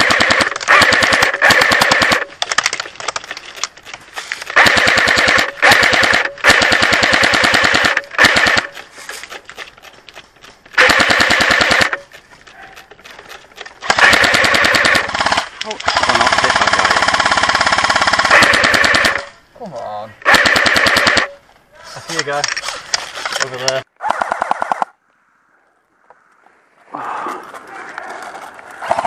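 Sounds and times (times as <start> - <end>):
airsoft gun firing bursts: 0.0 - 2.3, 4.5 - 8.8, 10.8 - 12.1, 13.8 - 19.3, 20.2 - 21.4, 24.0 - 24.9.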